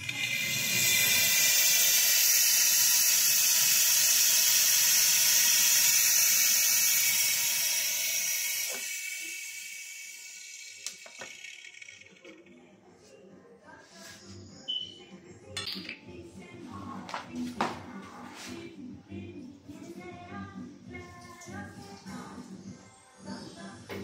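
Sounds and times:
pressurized gas hissing: 0:00.0 - 0:11.0.

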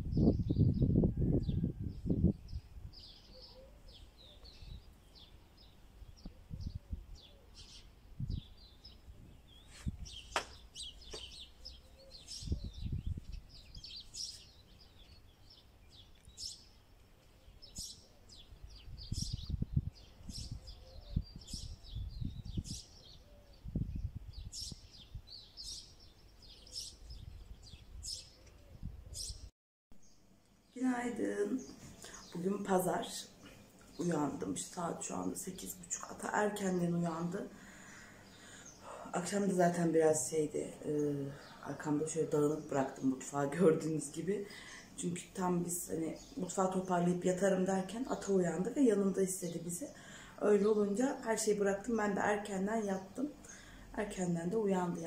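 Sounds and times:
wind rumbling on microphone: 0:00.0 - 0:03.2, 0:03.9 - 0:05.3, 0:06.0 - 0:14.4, 0:17.6 - 0:29.5
small birds chirping: 0:00.0 - 0:55.0.

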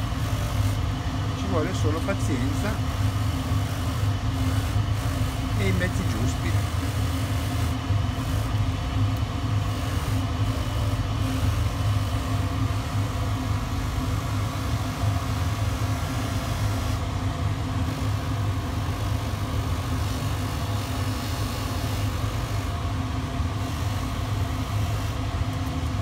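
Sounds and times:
polishing motor humming: 0:00.0 - 0:25.7.

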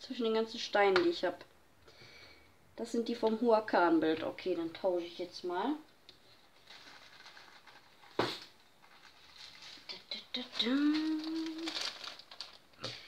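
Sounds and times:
woman humming: 0:10.2 - 0:11.8.

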